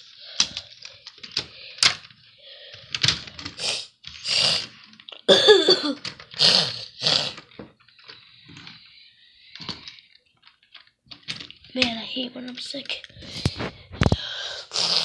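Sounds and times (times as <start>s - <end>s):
plastic bricks clicking: 0.4s - 5.2s, 9.6s - 14.2s
person coughing: 5.2s - 6.0s
breathy bursts: 13.1s - 15.0s.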